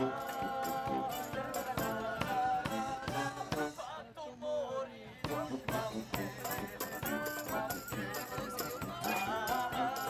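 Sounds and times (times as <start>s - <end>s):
trombones: 0.0s - 4.0s, 5.2s - 10.0s
clarinets: 6.1s - 10.0s.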